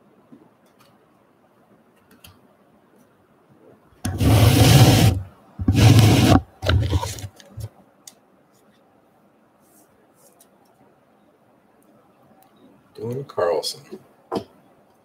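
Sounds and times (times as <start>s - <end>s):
cards scraping on wooden table: 4.1s - 7.7s.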